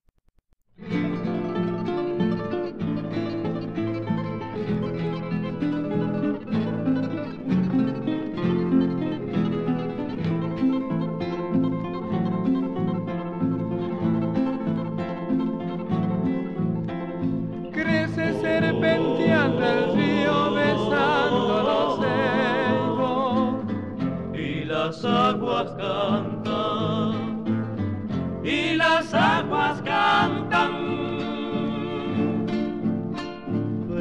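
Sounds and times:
acoustic guitar: 0:00.8 - 0:34.0
group singing with vibrato: 0:17.7 - 0:33.1.

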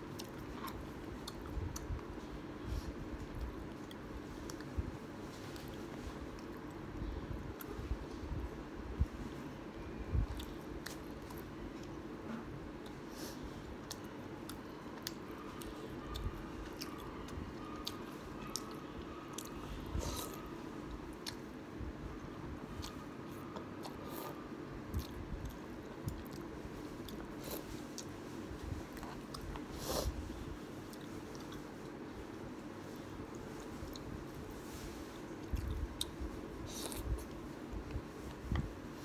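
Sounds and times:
faint hum: 0:00.0 - 0:39.0
chewing noodles: 0:13.7 - 0:21.5.

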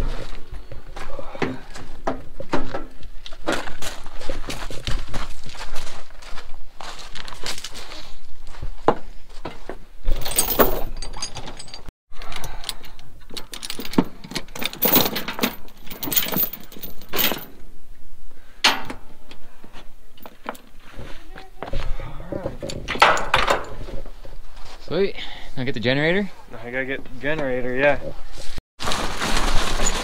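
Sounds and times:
chain clanking on wooden deck: 0:09.5 - 0:17.6, 0:22.4 - 0:24.2
metal chain rattling and clinking: 0:10.1 - 0:17.6.

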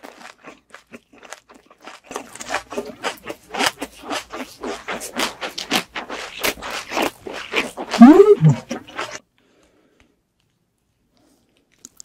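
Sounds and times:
person chewing food: 0:00.0 - 0:09.2
clicky mouth sounds: 0:07.9 - 0:08.8.

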